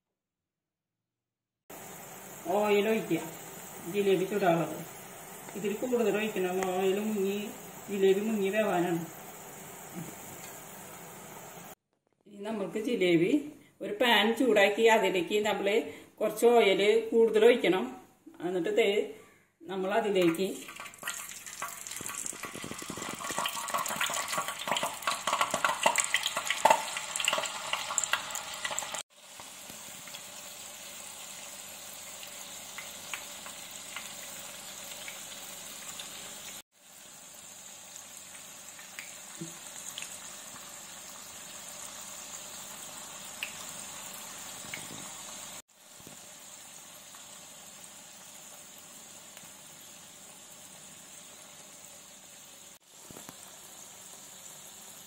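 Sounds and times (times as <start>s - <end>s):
batter sizzling in hot oil: 1.7s - 11.8s, 20.0s - 55.0s
oil popping: 20.2s - 30.2s.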